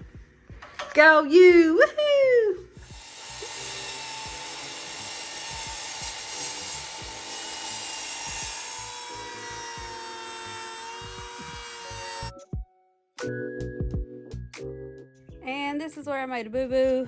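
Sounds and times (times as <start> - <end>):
background music: 0.0 - 17.0
miter saw cutting wood: 2.8 - 12.3.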